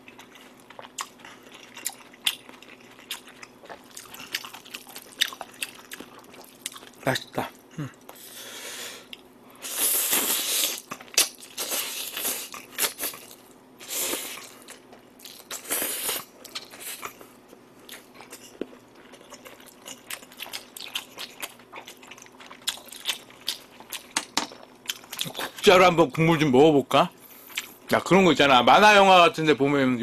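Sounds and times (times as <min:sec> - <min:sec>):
wet chewing with smacking clicks: 0:00.0 - 0:07.0.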